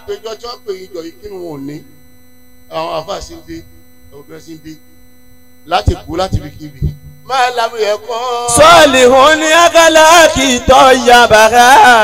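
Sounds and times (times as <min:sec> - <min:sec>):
man speaking into a microphone: 0:00.0 - 0:01.9, 0:02.7 - 0:04.8, 0:05.6 - 0:07.8
electrical mains hum: 0:00.0 - 0:12.0.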